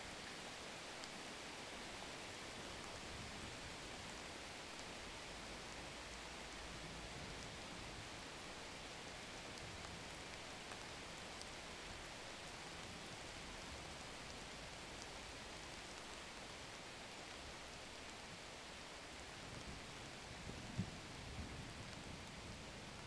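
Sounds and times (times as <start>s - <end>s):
faint steady hiss: 0.0s - 23.0s.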